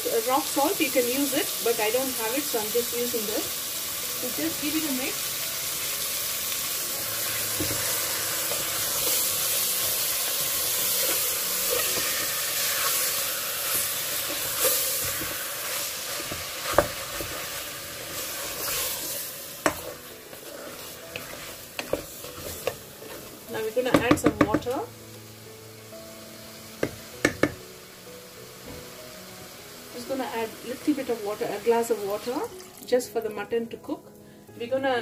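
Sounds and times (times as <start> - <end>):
meat sizzling in hot oil: 0.0 - 33.5
spatula knocking against pot: 23.9 - 24.7, 26.8 - 27.6.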